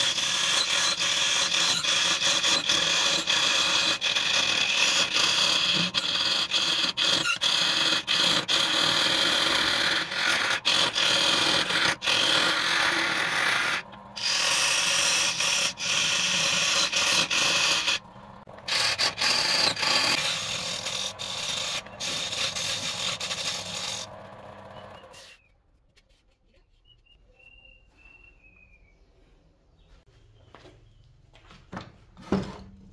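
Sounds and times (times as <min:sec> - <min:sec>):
chisel scraping spinning wood: 0:00.0 - 0:25.4.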